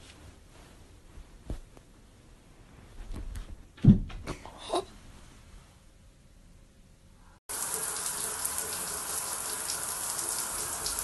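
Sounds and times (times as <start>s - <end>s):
shower water spraying: 7.5s - 11.0s.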